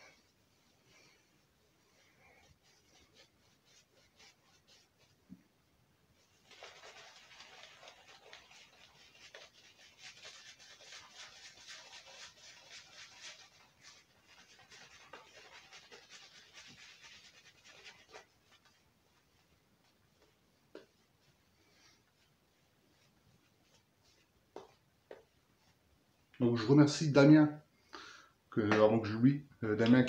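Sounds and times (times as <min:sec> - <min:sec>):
shaving brush rubbing lather: 0:01.0 - 0:05.2, 0:06.2 - 0:25.8.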